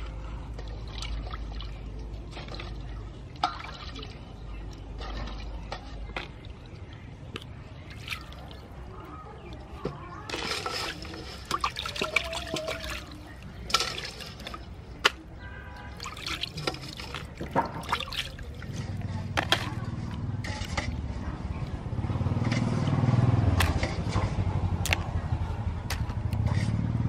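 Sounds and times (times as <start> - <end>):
water splashing in basin: 0.6 - 4.2, 4.8 - 21.2.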